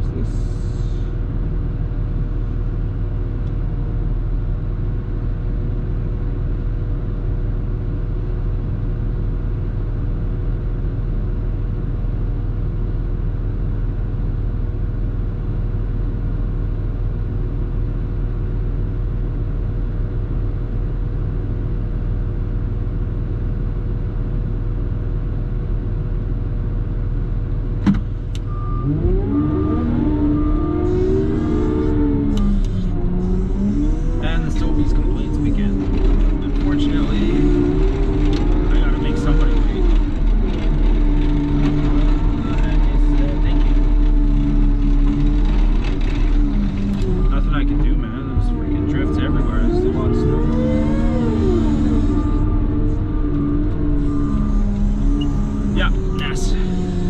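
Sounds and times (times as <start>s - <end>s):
diesel engine droning: 0.0s - 57.0s
person speaking: 34.0s - 37.8s, 38.6s - 40.0s, 47.1s - 52.1s, 54.4s - 57.0s.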